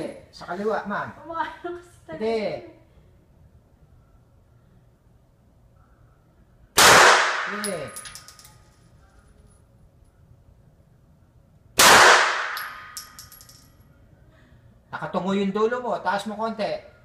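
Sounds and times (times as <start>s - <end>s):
pistol shots reverberating: 6.8s - 7.8s, 11.8s - 13.0s
light metallic clinks: 7.6s - 10.2s, 12.6s - 14.0s.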